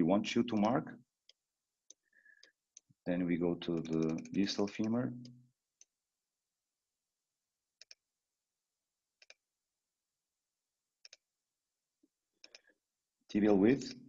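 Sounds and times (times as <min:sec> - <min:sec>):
computer mouse clicks: 0:03.8 - 0:05.9, 0:07.8 - 0:08.0, 0:09.2 - 0:09.4, 0:11.0 - 0:11.3, 0:12.4 - 0:12.8.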